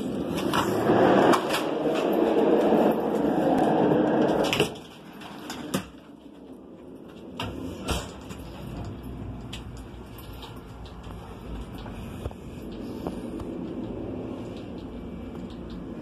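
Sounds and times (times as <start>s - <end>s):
elevator drive hum: 0.0s - 16.0s.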